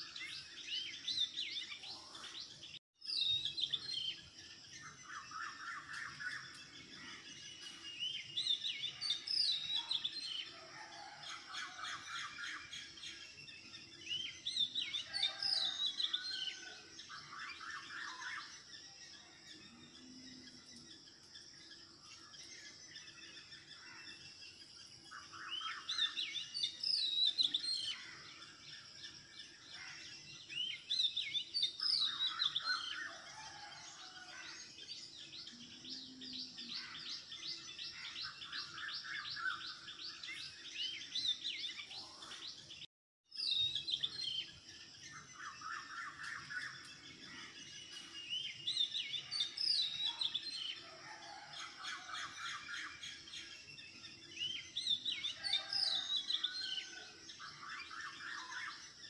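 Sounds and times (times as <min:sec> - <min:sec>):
birds chirping and singing: 0:00.0 - 0:59.0.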